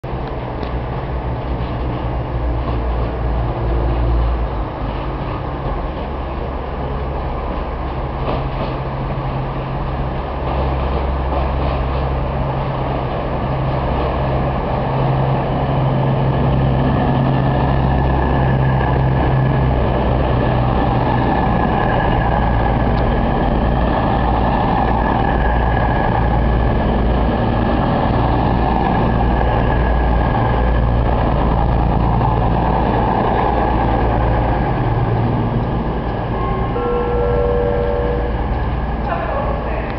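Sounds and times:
diesel train engine hum: 0.0 - 39.9
high whine: 29.1 - 39.9.

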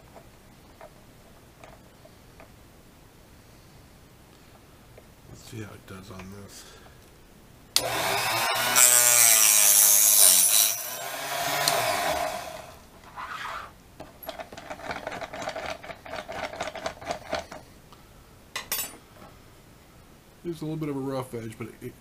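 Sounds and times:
mini cut-off saw motor whining: 7.8 - 12.8.

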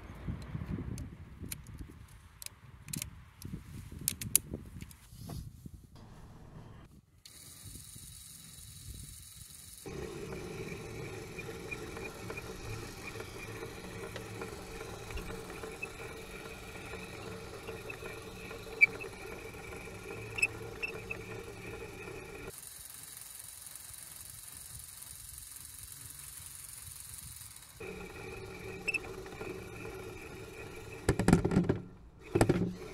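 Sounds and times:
small electric motor whining: 7.3 - 32.9.

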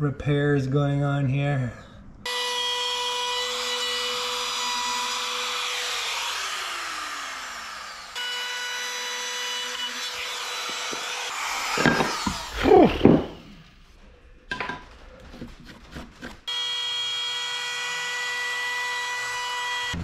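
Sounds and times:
rasp bit scraping wood: 2.3 - 12.6
rotary tool whining: 2.3 - 13.4.

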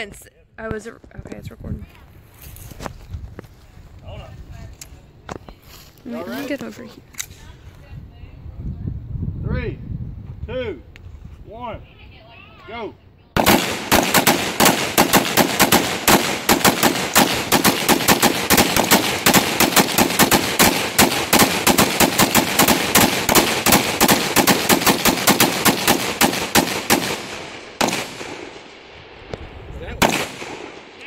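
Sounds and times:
rifles firing rapidly: 13.4 - 28.6, 30.0 - 31.0.

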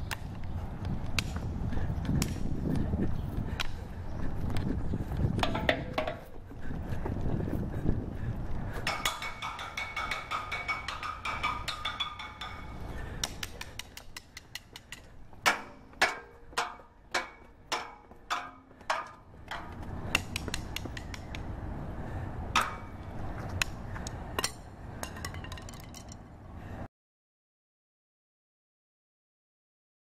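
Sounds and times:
stick striking metal railings: 5.4 - 6.4, 8.8 - 21.8, 22.5 - 26.3.

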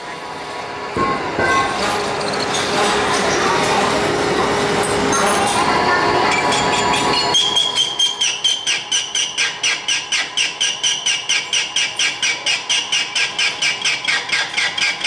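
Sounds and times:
cutting tool squealing: 6.3 - 15.0.

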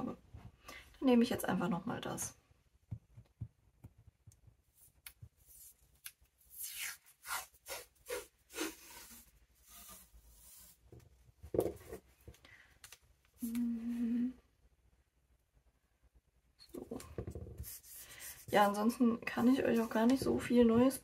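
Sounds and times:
tape peeling off roll: 5.5 - 10.8.

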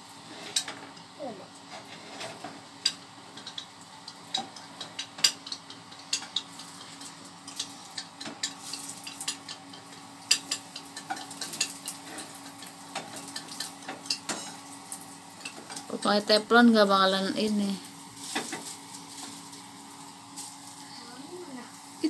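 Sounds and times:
egg sizzling in a pan: 0.0 - 22.0
spatula scraping and tapping pan: 1.7 - 14.7.

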